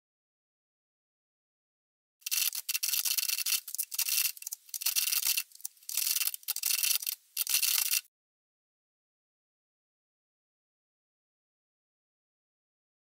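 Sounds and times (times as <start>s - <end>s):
manual typewriter typing: 2.2s - 8.1s.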